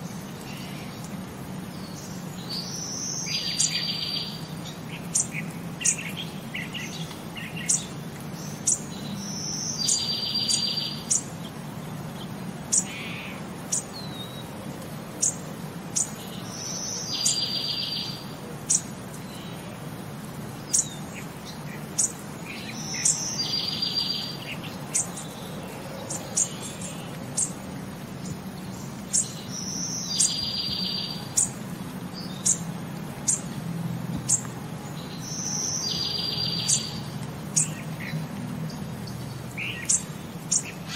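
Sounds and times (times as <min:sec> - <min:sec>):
bird chirping: 0:00.0 - 0:14.6, 0:15.2 - 0:19.8, 0:20.4 - 0:33.6, 0:34.2 - 0:40.9
bird trill: 0:01.8 - 0:11.3, 0:16.0 - 0:19.6, 0:20.7 - 0:27.6, 0:29.0 - 0:31.6, 0:35.0 - 0:38.2, 0:39.6 - 0:40.9.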